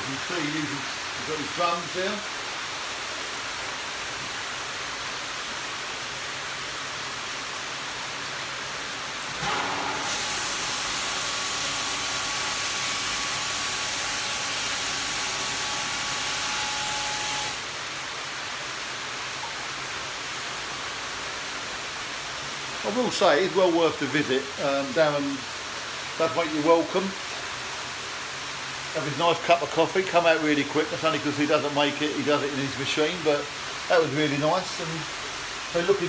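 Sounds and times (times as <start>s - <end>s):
bright hiss with faint whine: 0.0s - 36.0s
water rushing through filter: 7.0s - 21.7s.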